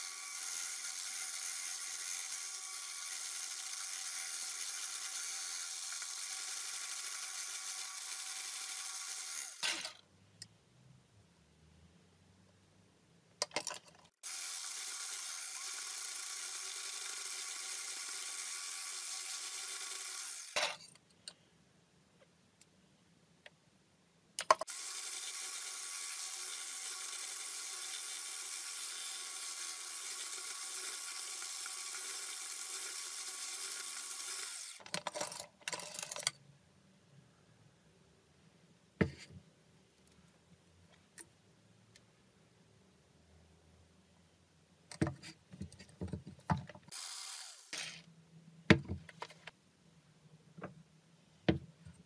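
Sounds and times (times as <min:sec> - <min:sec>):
electric mixer motor: 0:14.2 - 0:20.6, 0:24.6 - 0:34.8.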